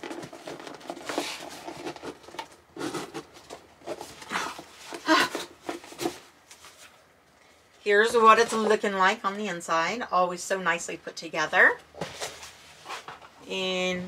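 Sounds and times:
cardboard rustling and scraping: 0:00.0 - 0:07.1, 0:11.9 - 0:13.4.

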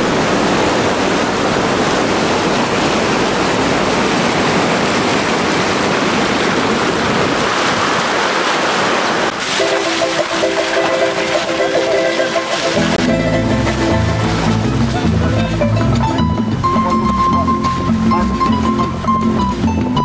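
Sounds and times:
river rushing over rocks: 0:00.0 - 0:20.0
music: 0:09.7 - 0:20.0.

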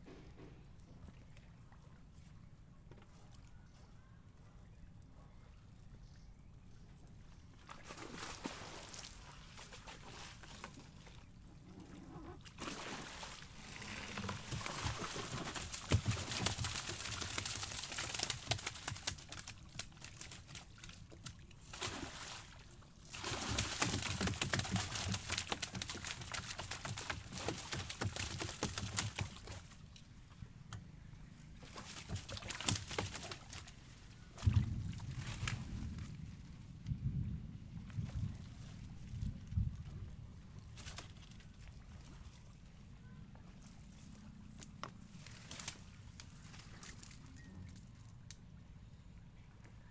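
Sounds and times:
water splashing and dripping off net: 0:07.6 - 0:11.2, 0:12.4 - 0:29.8, 0:31.6 - 0:36.2, 0:40.6 - 0:42.4, 0:45.2 - 0:47.2.

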